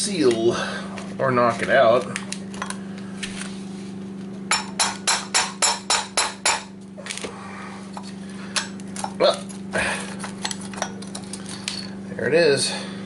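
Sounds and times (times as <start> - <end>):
hammer striking metal punch: 4.5 - 6.7.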